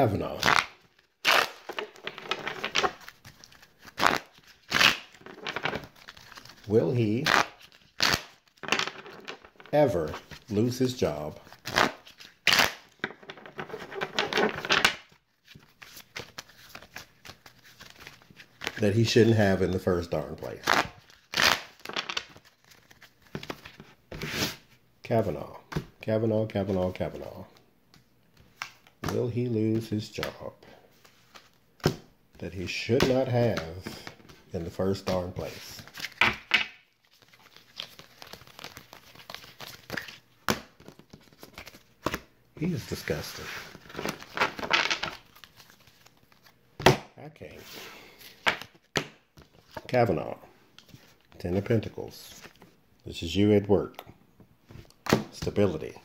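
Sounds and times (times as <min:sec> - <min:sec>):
crinkling handling noise: 0:00.2 - 0:19.0, 0:32.8 - 0:46.8
cards being shuffled: 0:00.3 - 0:18.9, 0:19.5 - 0:24.6, 0:32.6 - 0:46.6.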